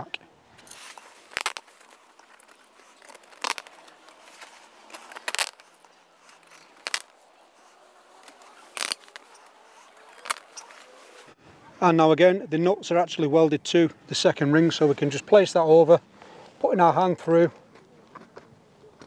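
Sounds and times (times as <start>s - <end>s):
canvas rustling: 0.6s - 11.4s.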